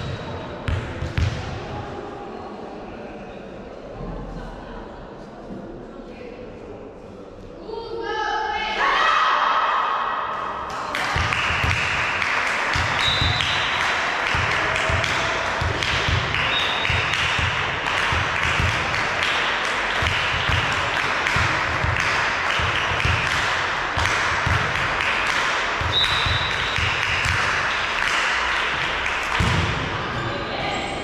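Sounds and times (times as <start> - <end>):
crowd din: 10.2 - 31.0.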